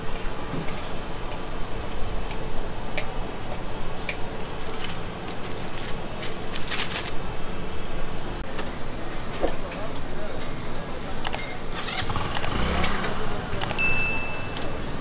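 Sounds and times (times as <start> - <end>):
sharp clicks and ticks: 11.2 - 11.6, 12.3 - 13.0, 13.6 - 13.8.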